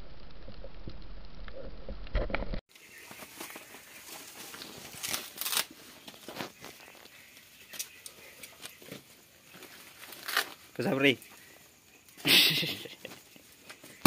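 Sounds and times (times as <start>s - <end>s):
fire crackling: 0.0s - 14.0s.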